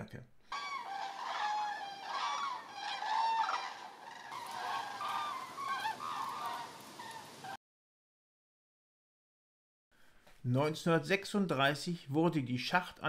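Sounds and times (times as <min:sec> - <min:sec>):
cranes trumpeting calls: 0:00.5 - 0:07.6.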